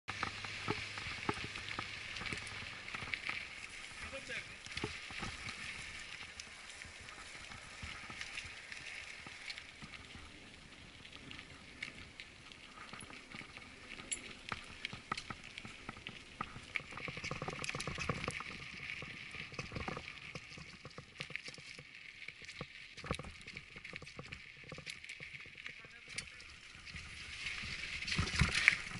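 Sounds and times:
bike tyres crunching on gravel: 0.1 - 28.9
bike clicks and rattles: 11.1 - 28.9.

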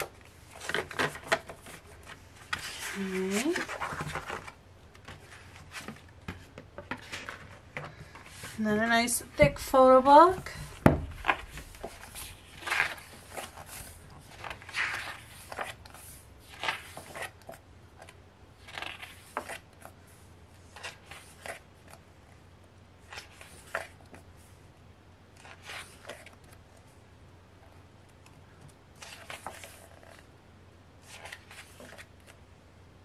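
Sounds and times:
book pages turning: 0.0 - 8.6, 10.6 - 20.0, 20.6 - 22.0, 23.0 - 24.3, 25.4 - 26.7, 28.2 - 30.3, 31.0 - 32.4.

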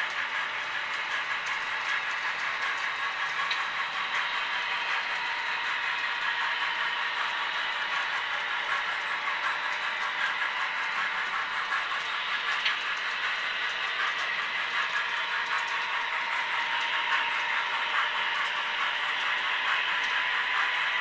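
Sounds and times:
model trains rattling on track: 0.0 - 21.0.

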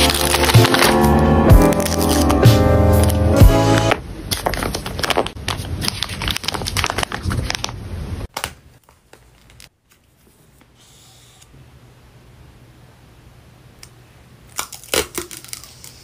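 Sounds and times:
plastic bag crinkling: 0.0 - 1.0, 4.3 - 7.8.

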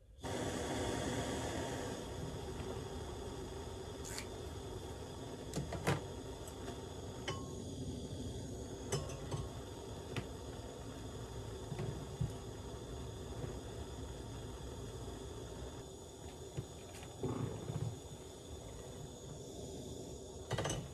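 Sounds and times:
cookware clinking: 8.9 - 9.5.

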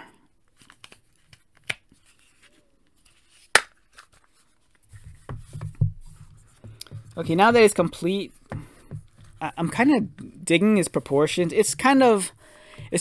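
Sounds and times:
soft handling knocks: 4.9 - 9.4.

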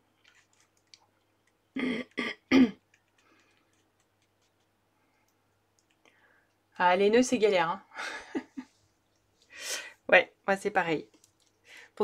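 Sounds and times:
woman coughing: 1.8 - 2.8.

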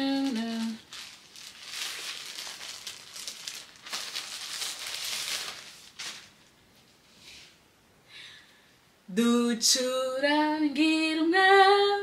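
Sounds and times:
plastic packaging crinkling: 0.0 - 6.6.

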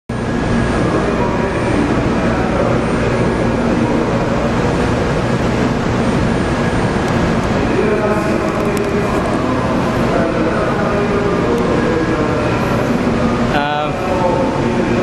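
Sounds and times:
faint steady whine: 0.1 - 15.0
loud rumbling at railway platform: 0.1 - 15.0.

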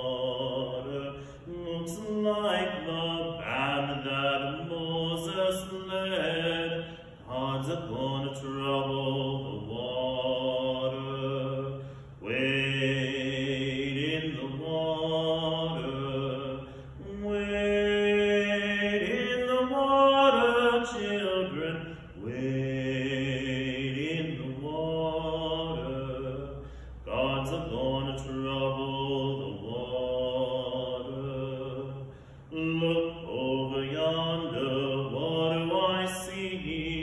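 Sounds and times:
man singing a hymn: 0.0 - 37.0.

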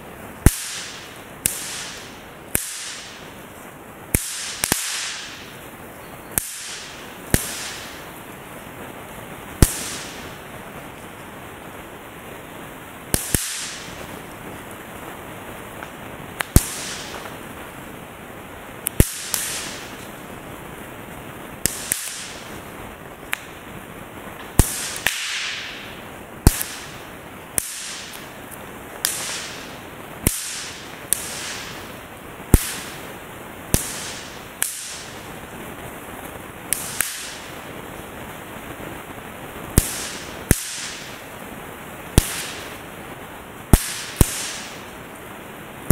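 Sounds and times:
steady background hiss: 0.0 - 45.9
snap pops cracking: 0.4 - 3.3, 4.1 - 5.6, 6.3 - 8.1, 9.6 - 10.4, 13.1 - 14.3, 15.8 - 17.4, 18.8 - 20.2, 21.6 - 22.5, 23.2 - 23.6, 24.4 - 33.1, 33.7 - 35.2, 36.7 - 37.6, 39.7 - 41.2, 42.2 - 42.8, 43.7 - 44.8.

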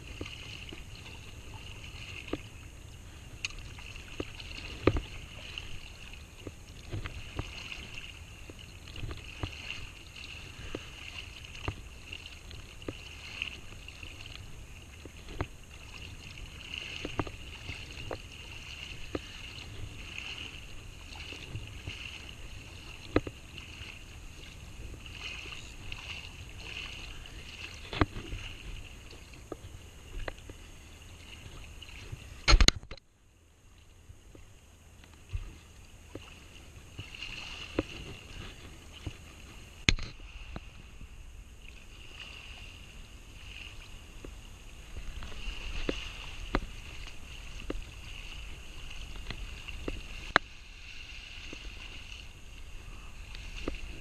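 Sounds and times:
faint high hiss: 0.0 - 54.0
water lapping and sloshing: 0.0 - 54.0
sharp knocks and clicks: 32.5 - 33.0, 39.9 - 40.2.

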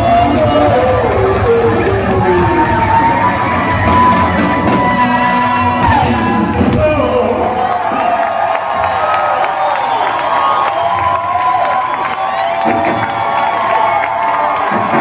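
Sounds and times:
person singing a long high note: 0.0 - 6.5
live rock band playing: 0.0 - 7.0.

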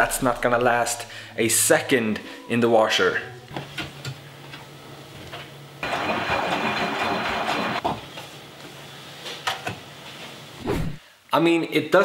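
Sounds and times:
washing machine hissing rush: 5.8 - 7.8.

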